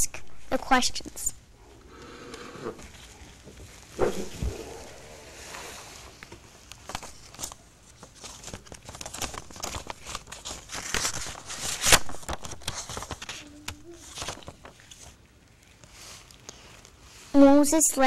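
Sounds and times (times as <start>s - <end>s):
paper cards rustling: 6.2s - 16.9s.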